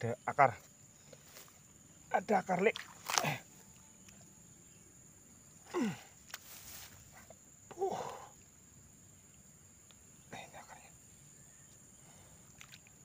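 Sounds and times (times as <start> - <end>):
insects droning: 0.0 - 13.0
hands splashing in muddy water: 2.7 - 3.5, 12.5 - 13.0
grunts of effort: 3.1 - 3.5, 5.6 - 6.2, 7.7 - 8.4.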